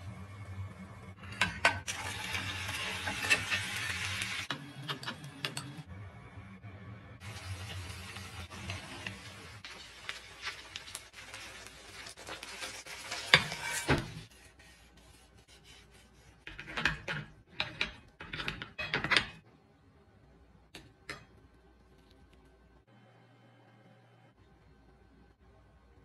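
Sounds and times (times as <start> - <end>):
hash brown scraping onto plate: 12.6 - 17.8.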